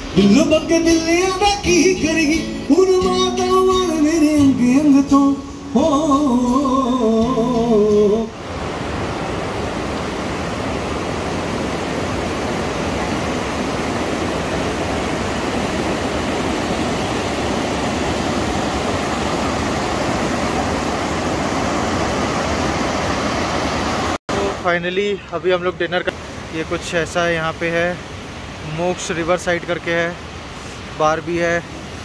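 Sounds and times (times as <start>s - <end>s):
song with singing: 0.0s - 8.4s
rapids rushing over rocks: 6.3s - 32.0s.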